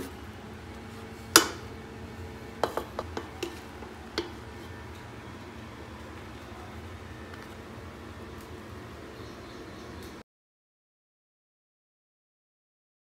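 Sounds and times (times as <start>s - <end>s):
plastic spoon knocking on metal pot: 2.6s - 3.6s.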